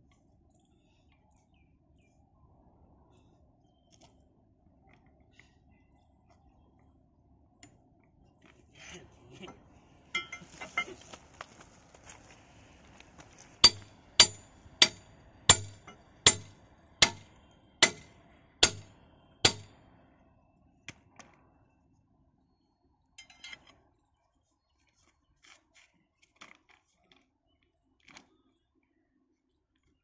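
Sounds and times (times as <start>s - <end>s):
steel tools striking metal: 10.2s - 11.0s, 13.6s - 19.7s
faint metal clinks: 10.2s - 11.1s, 23.2s - 23.8s.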